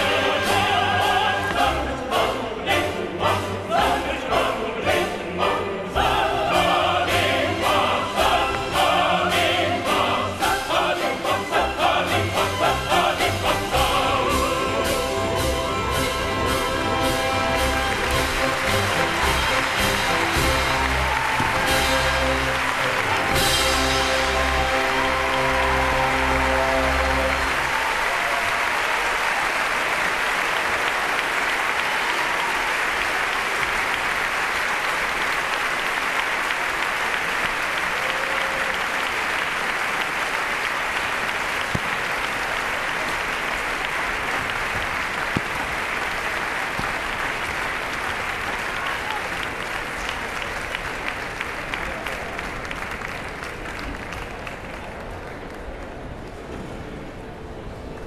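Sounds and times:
audience applauding: 15.5s - 56.6s.

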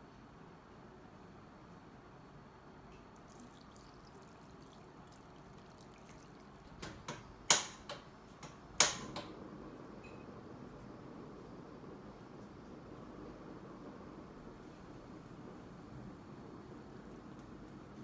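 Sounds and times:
water trickling into a pan: 3.0s - 7.8s.

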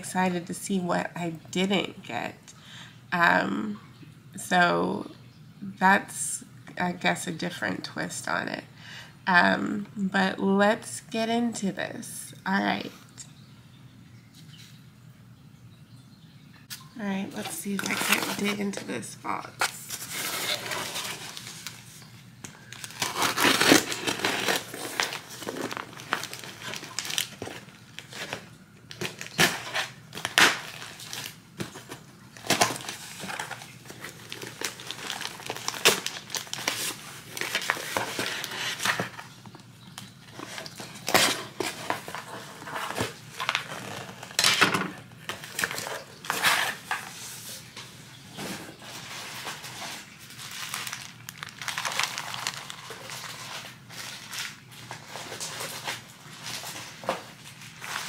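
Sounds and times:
packaging crinkling and tearing: 17.5s - 18.9s, 19.6s - 58.0s.

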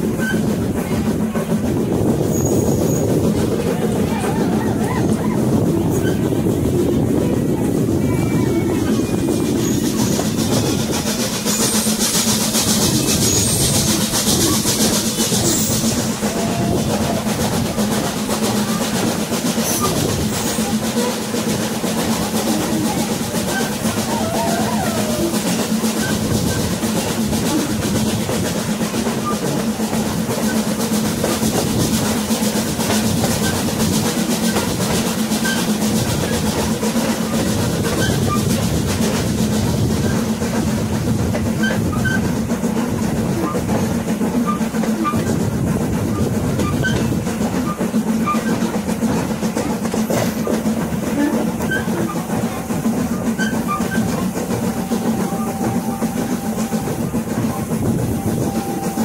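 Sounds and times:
train rumbling on track: 0.0s - 59.0s
faint passenger voices: 0.6s - 11.1s, 12.9s - 28.5s, 42.7s - 59.0s.

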